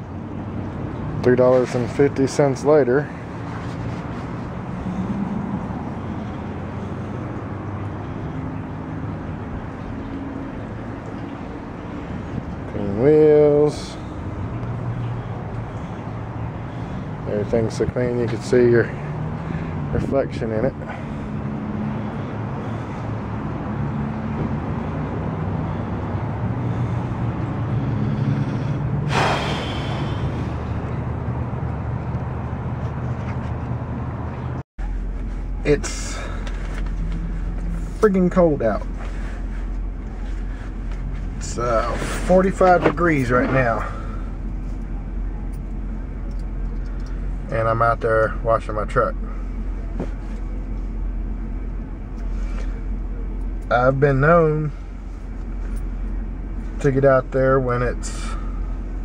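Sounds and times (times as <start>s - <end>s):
low mechanical hum: 1.7s - 59.0s
hiss: 29.1s - 30.3s.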